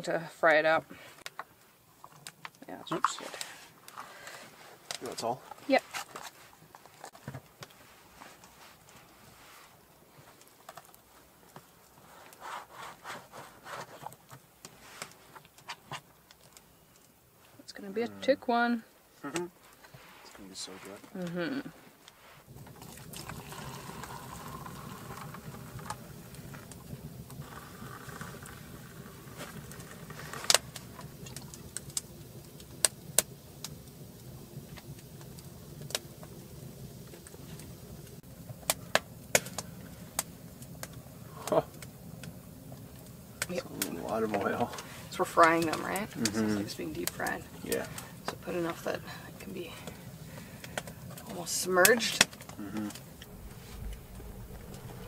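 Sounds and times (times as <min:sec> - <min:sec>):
cup scraping through dough: 0:12.1 - 0:14.2
low steady hum: 0:16.3 - 0:55.0
water pouring into metal mug: 0:22.7 - 0:25.9.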